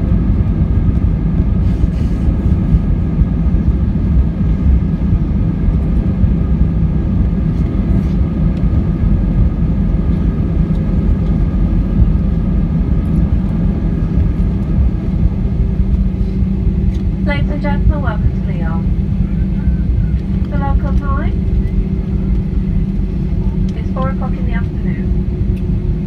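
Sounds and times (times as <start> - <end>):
jet engines humming: 0.0 - 26.0
low rumble of wheels and airframe: 0.0 - 26.0
steady whining tones: 0.0 - 26.0.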